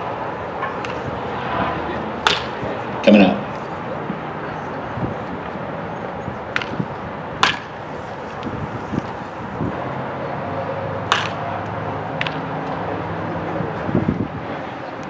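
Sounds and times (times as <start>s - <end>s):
bat cracking against ball: 0.7s - 1.0s, 2.2s - 2.6s, 6.5s - 6.8s, 7.4s - 7.8s, 11.0s - 12.5s.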